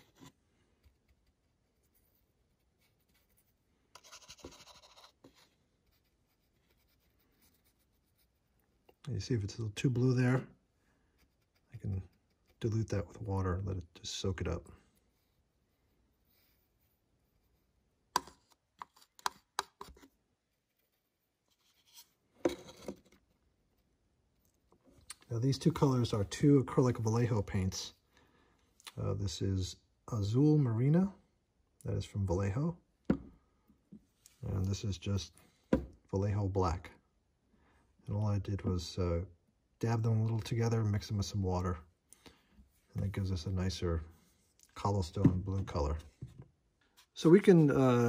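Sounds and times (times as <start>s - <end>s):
paintbrush scratching: 0.0s - 9.0s, 11.0s - 13.2s.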